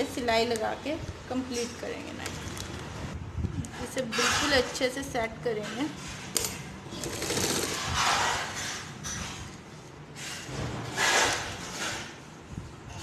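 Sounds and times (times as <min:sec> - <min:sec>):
sewing machine mechanism: 0:06.4 - 0:07.9.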